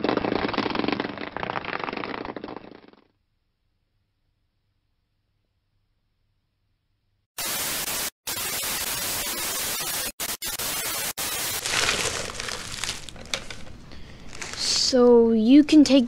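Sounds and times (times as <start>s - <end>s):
television static hiss: 7.4s - 11.8s.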